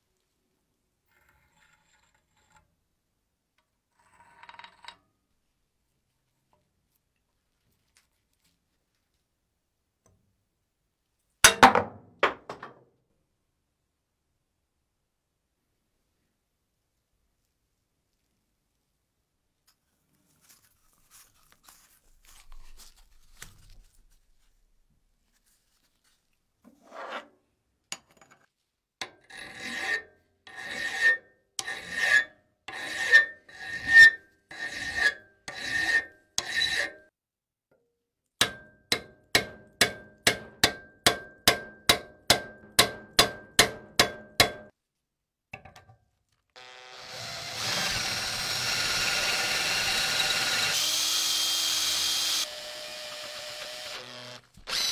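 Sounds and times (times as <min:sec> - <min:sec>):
hand scraping metal: 0:26.7 - 0:27.4, 0:29.2 - 0:37.0
power tool running: 0:46.6 - 0:54.9.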